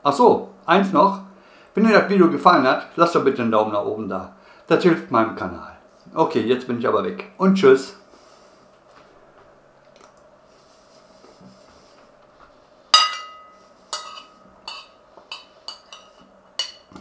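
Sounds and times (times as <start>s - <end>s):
cutlery clinking on ceramic plate: 13.0s - 17.0s.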